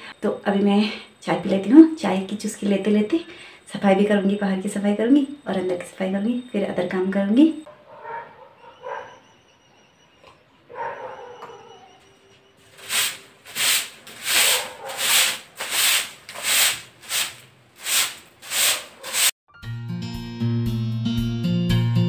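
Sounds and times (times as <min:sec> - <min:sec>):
broom sweeping concrete floor: 0:12.6 - 0:19.4.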